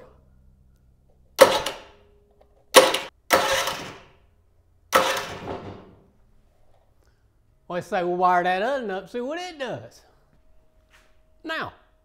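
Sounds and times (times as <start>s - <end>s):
electric starter motor cranking engine: 1.4s - 1.9s, 2.8s - 4.2s, 4.9s - 5.6s.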